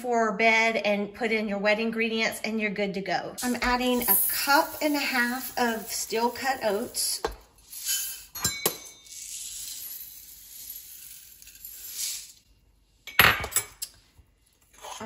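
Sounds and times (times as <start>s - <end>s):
oats pouring into ceramic pot: 3.5s - 8.3s, 9.1s - 12.5s.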